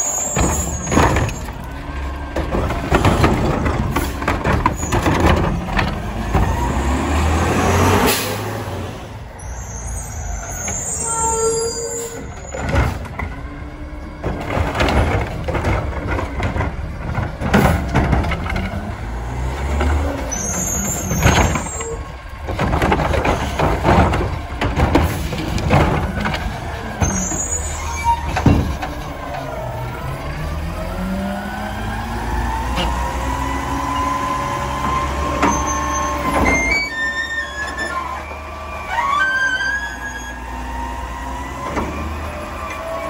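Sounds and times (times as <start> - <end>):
high squeals: 0.0 - 1.6, 9.4 - 12.7, 20.3 - 22.1, 27.0 - 28.5, 35.4 - 40.6
metal clanks and bangs: 0.0 - 6.8, 14.2 - 29.9
garbage truck engine running: 0.0 - 11.0, 12.0 - 43.0.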